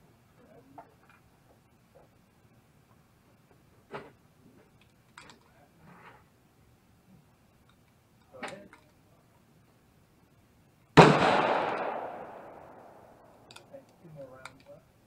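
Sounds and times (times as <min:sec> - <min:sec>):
gunshot crack: 0:11.0 - 0:13.3.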